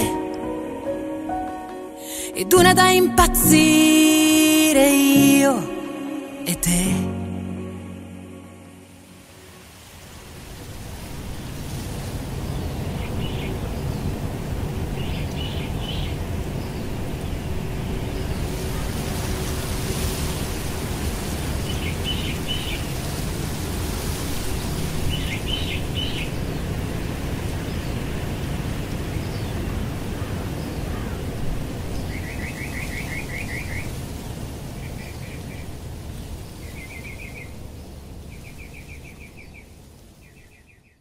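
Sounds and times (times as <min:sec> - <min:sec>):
rushing background noise: 0:07.4 - 0:39.3
birds chirping: 0:12.4 - 0:14.3, 0:14.9 - 0:23.1, 0:24.5 - 0:26.8.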